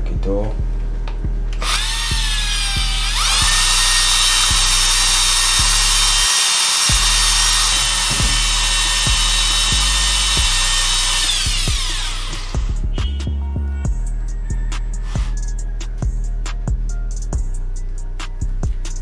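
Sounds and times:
background music with steady beat: 0.0s - 19.0s
cordless drill whining: 1.6s - 12.9s.

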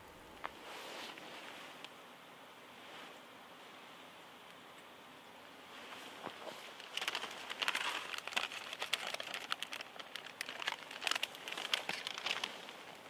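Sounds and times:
noodles boiling: 5.4s - 13.0s
plastic packet crinkling: 6.6s - 13.0s.

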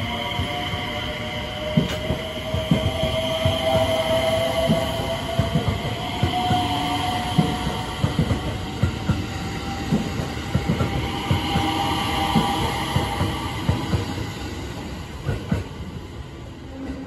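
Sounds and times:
train wheels clattering on track: 0.0s - 16.0s.

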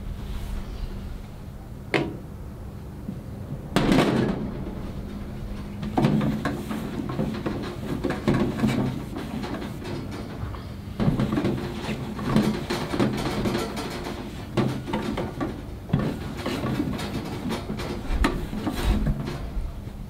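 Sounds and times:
knocks and clunks of handling: 3.8s - 19.6s.

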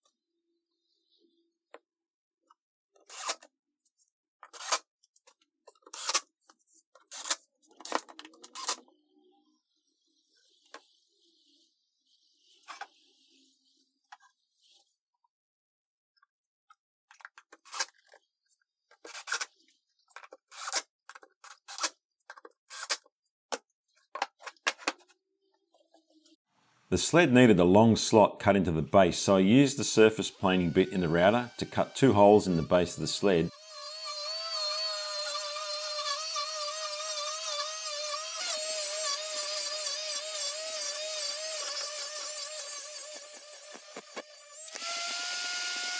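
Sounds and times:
router cutting with high whine: 29.0s - 45.9s
cordless drill driving screws: 30.3s - 45.9s.

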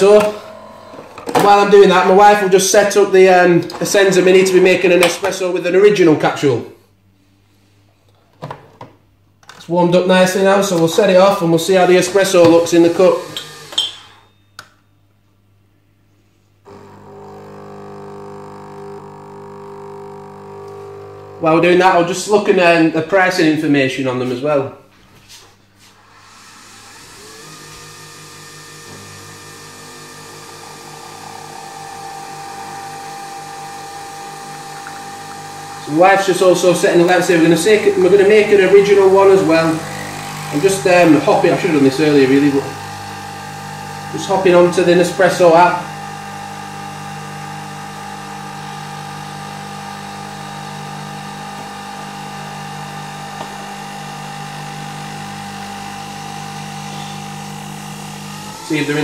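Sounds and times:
coffee machine pulsing hum: 0.0s - 3.1s, 10.7s - 14.2s, 16.6s - 21.9s, 26.1s - 59.0s.

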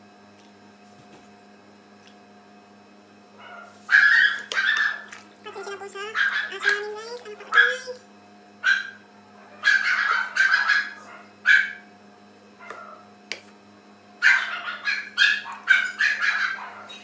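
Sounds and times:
dog barking: 3.4s - 5.1s, 6.1s - 6.8s, 7.5s - 7.8s, 8.6s - 11.8s, 12.6s - 13.0s, 14.2s - 17.0s.

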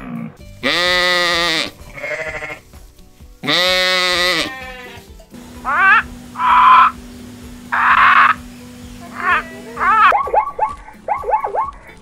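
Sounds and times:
sheep bleating: 0.0s - 2.7s, 3.4s - 7.0s, 7.7s - 8.4s, 9.1s - 10.1s
parrot squawking: 5.6s - 7.0s, 7.7s - 11.8s.

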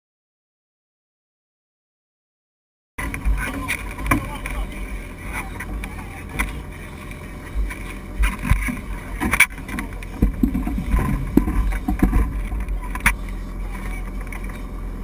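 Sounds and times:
boat engine rumble: 3.0s - 15.0s
wind on microphone: 3.0s - 15.0s
knocks and clatter on deck: 7.6s - 13.2s.

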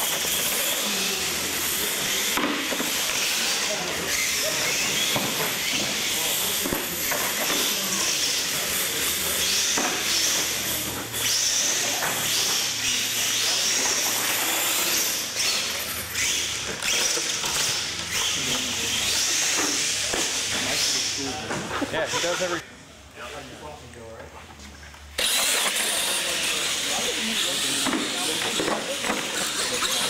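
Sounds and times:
tyres hissing on concrete: 25.2s - 30.0s.

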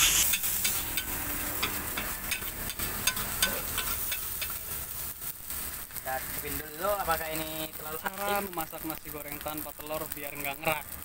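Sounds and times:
metal spatula scraping wok: 0.0s - 5.8s
soft sizzle: 0.0s - 11.0s.

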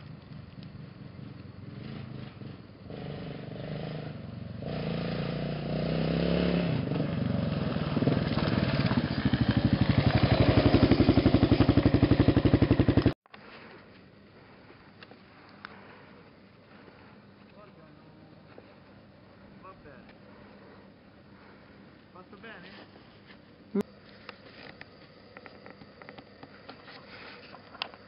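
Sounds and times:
motorcycle engine on gravel: 0.0s - 16.0s.

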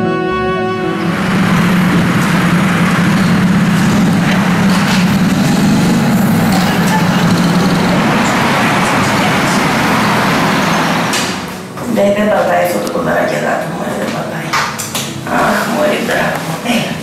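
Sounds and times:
city street traffic: 0.7s - 11.8s
vehicle engine running: 0.9s - 11.6s.

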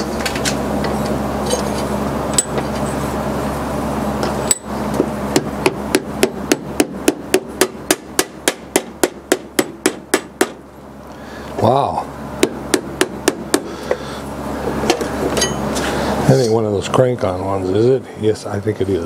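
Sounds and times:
steady hum: 0.0s - 19.0s
hammer tapping: 4.5s - 10.6s, 12.4s - 13.7s.

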